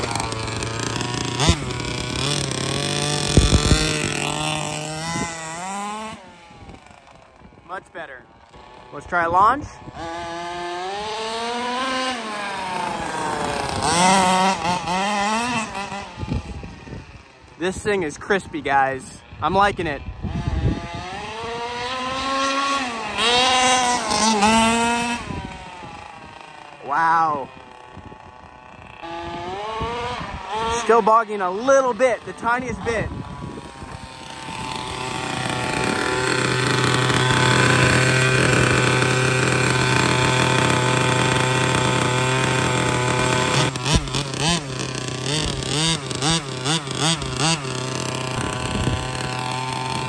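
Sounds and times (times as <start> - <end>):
sharp thumps: 0.0 - 4.5, 43.8 - 44.7
rc car engine revving: 0.0 - 50.0.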